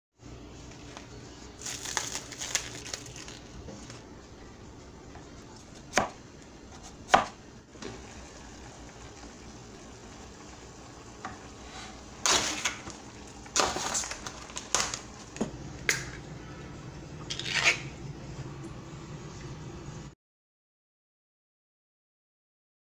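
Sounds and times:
cleaver chopping on wooden board: 0:07.1 - 0:07.3.

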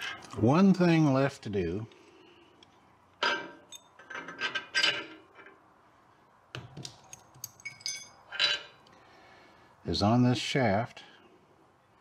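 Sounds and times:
metal parts scraping: 0:07.0 - 0:08.8
metallic clinks: 0:07.0 - 0:08.8.

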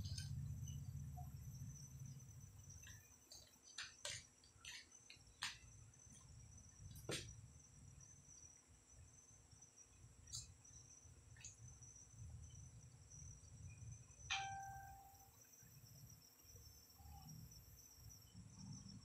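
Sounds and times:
low hum: 0:00.0 - 0:03.1
crickets chirring: 0:00.0 - 0:19.0.

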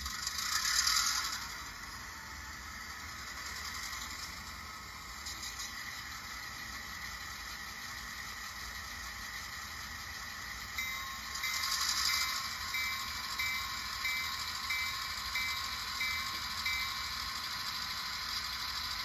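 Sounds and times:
model engine hum: 0:00.0 - 0:19.0
locomotive bell ringing: 0:10.7 - 0:17.9.

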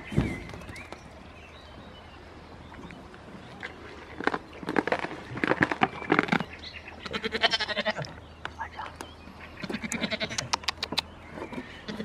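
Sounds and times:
goat bleating: 0:07.0 - 0:08.1, 0:09.8 - 0:10.6.

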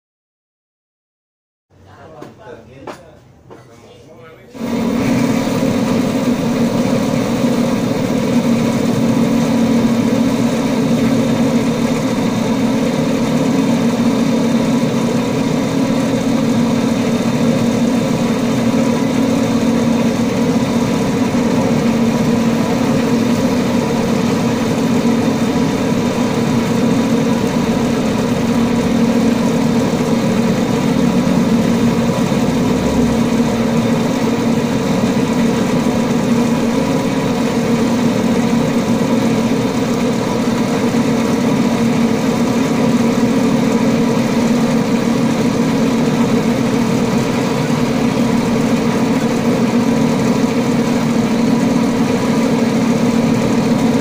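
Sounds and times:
lathe machine humming: 0:04.5 - 0:54.0.

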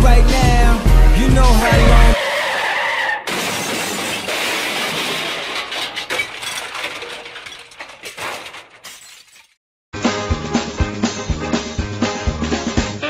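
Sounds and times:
glass shattering: 0:03.3 - 0:09.6.

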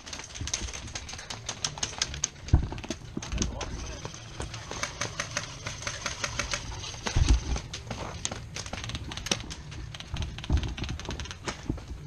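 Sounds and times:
airsoft guns firing: 0:04.4 - 0:07.9, 0:08.6 - 0:11.8.

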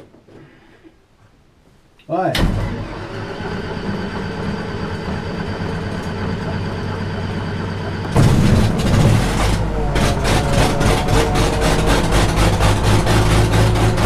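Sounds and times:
aircraft piston engine idling: 0:04.0 - 0:14.0.

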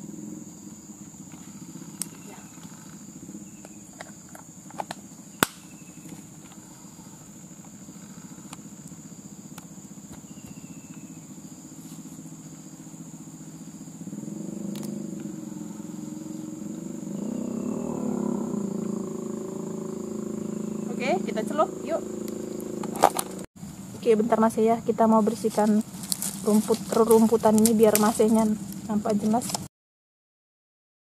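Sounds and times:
small engine droning: 0:00.0 - 0:24.0, 0:24.8 - 0:29.7.

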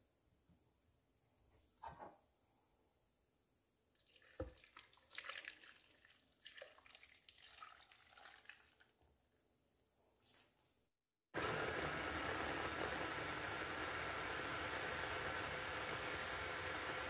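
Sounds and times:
liquid splashing into blender jar: 0:04.0 - 0:08.9.

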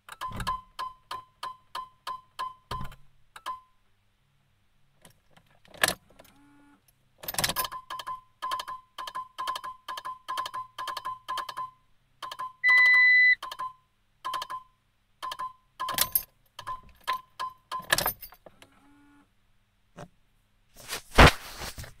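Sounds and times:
dashboard warning chime ticking: 0:07.6 - 0:14.7
long high beep: 0:12.6 - 0:13.4
handling rustle: 0:20.7 - 0:22.0.

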